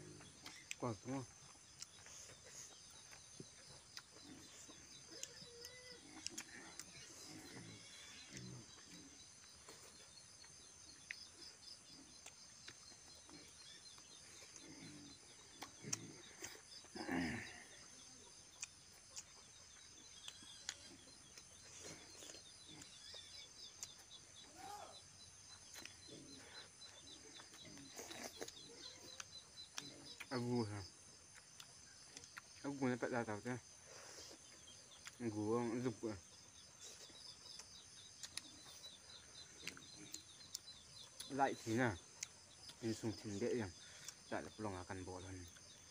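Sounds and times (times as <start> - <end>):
chewing and eating sounds: 0.0 - 32.7, 33.6 - 44.6.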